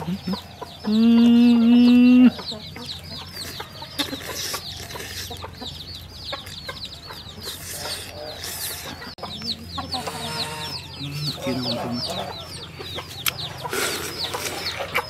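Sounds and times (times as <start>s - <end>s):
chicks peeping: 0.0s - 15.0s
person humming: 0.9s - 2.4s.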